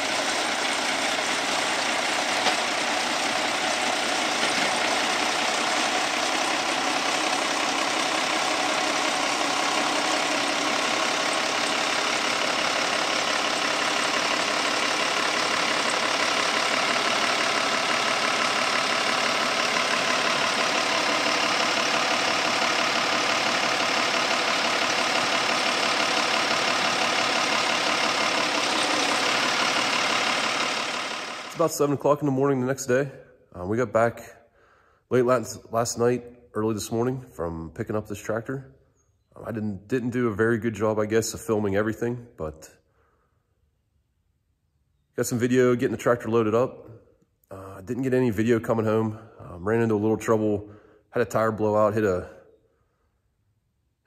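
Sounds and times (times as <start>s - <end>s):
tractor diesel engine running: 0.0s - 33.1s.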